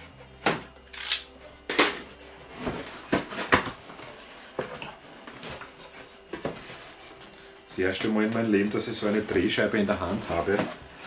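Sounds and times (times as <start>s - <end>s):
box cutter slitting tape: 0.9s - 1.3s.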